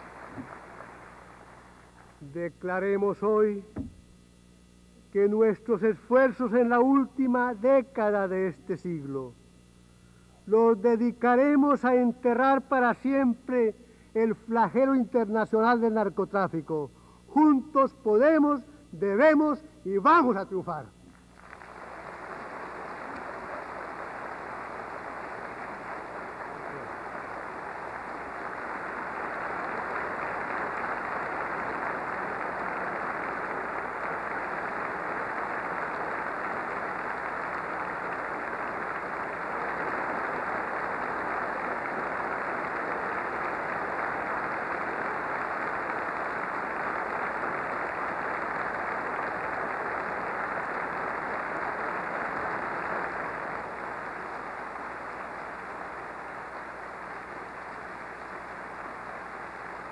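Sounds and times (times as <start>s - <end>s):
large audience applauding: 0.0s - 2.4s, 21.3s - 59.9s.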